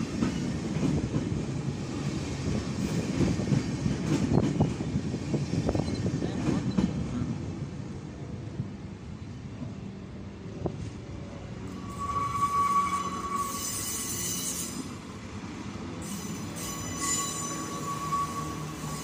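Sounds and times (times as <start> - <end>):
train wheels clattering on rails: 0.0 - 7.2, 15.8 - 19.0
train wheel squeaks: 11.7 - 15.0, 16.0 - 19.0.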